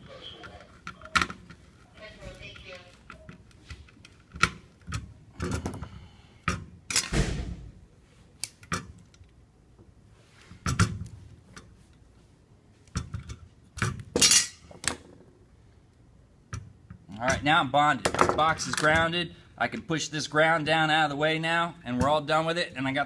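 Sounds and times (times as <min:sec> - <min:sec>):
tools and wire clinking on metal boxes: 0:00.0 - 0:07.1, 0:12.9 - 0:15.0.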